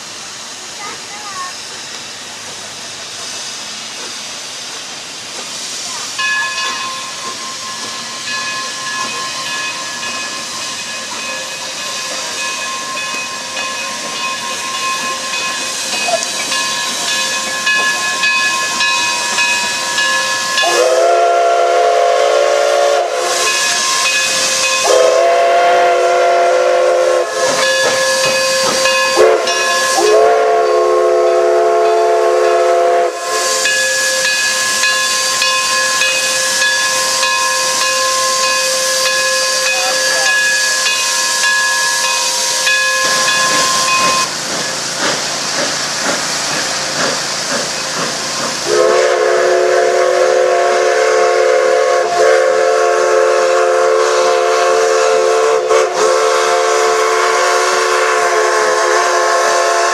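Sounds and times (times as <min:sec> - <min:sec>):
steam locomotive hissing steam: 0:00.0 - 0:59.9
chime whistle blasts: 0:06.2 - 0:21.1, 0:33.0 - 0:44.3.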